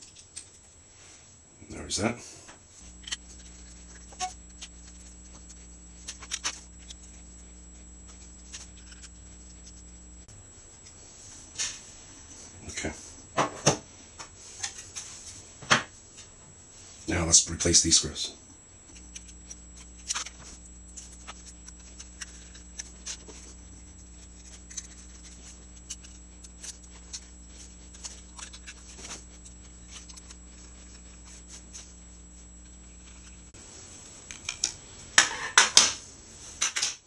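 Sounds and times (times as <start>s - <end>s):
steady low hum: 0.0s - 36.8s
screwdriver clicking and scraping: 3.0s - 4.3s.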